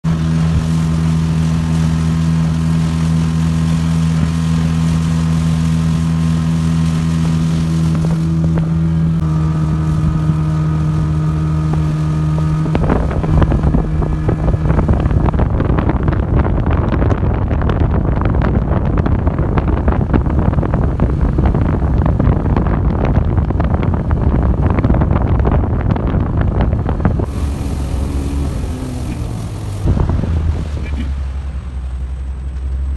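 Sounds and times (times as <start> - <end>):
rush of water and wind: 0.0 - 32.9
speedboat engine: 0.0 - 32.9
hull knocking on waves: 6.4 - 32.0.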